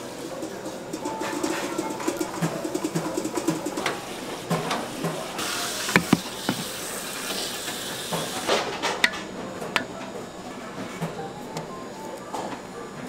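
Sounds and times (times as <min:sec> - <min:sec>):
utensils clinking and knocking: 0:06.0 - 0:06.8.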